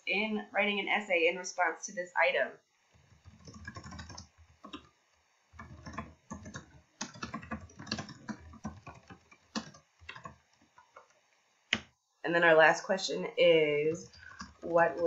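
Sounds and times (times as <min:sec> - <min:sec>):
typing on computer keyboard: 0:03.0 - 0:04.9, 0:05.6 - 0:11.9, 0:14.0 - 0:15.0.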